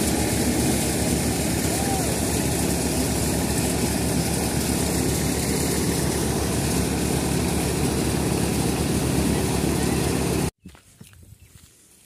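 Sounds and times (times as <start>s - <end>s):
threshing machine drone: 0.0s - 10.5s.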